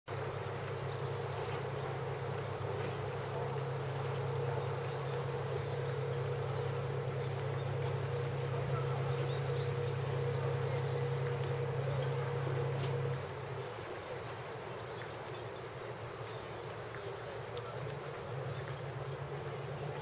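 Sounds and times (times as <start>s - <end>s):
thin higher hum: 0.1s - 13.7s
motor droning hum: 0.1s - 20.0s.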